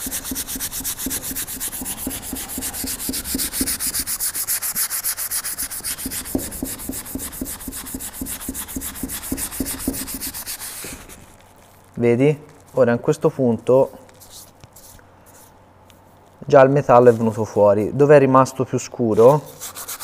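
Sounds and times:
sponge scrubbing metal: 0.0 - 11.1, 19.2 - 20.0.

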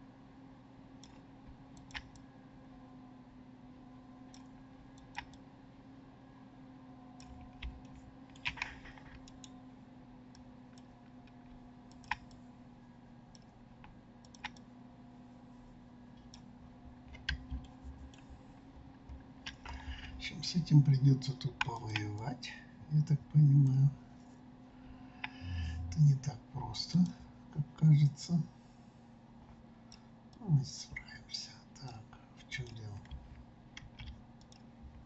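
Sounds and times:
steady low hum: 0.0 - 35.0
mouse and keyboard clicks: 1.0 - 1.2, 1.8 - 2.2, 4.3 - 5.4, 7.2 - 9.6, 10.7 - 12.4, 14.2 - 14.6.

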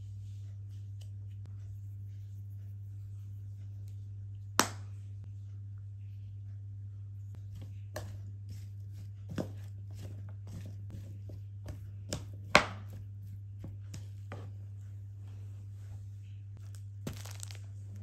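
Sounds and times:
knife chopping on cutting board: 9.3 - 13.0.

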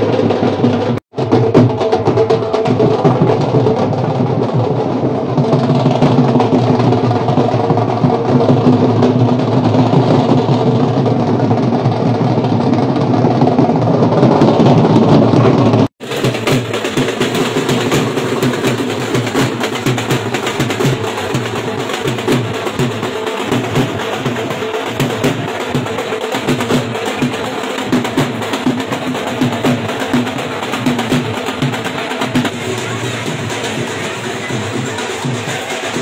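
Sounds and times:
drums beaten with sticks: 0.0 - 36.0.

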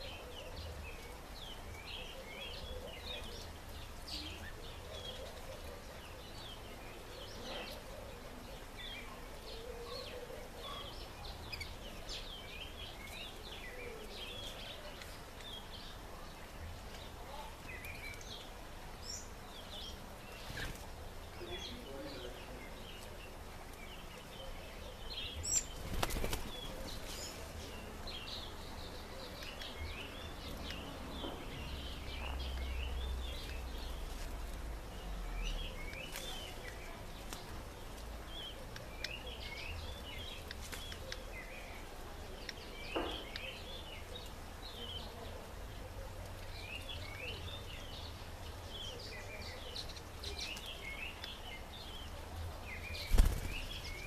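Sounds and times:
birds chirping: 0.0 - 54.0
wings fluttering: 25.6 - 27.3, 52.9 - 54.0.

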